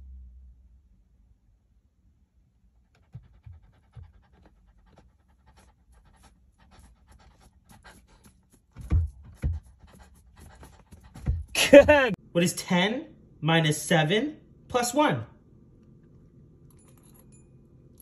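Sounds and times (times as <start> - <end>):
dog panting: 2.8 - 12.2
dull thumps: 8.7 - 12.2.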